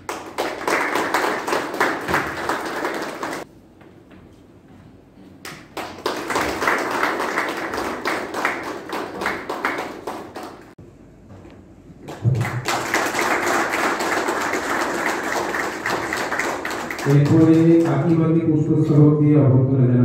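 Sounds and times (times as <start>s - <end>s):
audience clapping: 0.0s - 3.5s, 5.4s - 10.8s, 12.0s - 18.4s.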